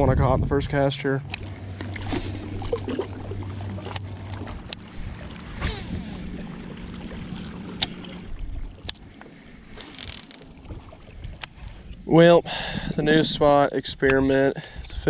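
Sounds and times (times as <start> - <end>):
boat motor humming: 0.0 - 13.2.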